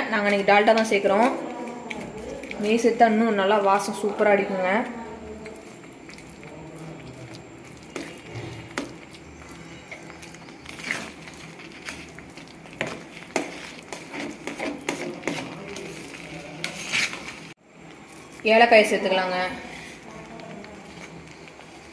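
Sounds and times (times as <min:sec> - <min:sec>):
steel ladle scraping a pan: 0:07.8 - 0:17.5.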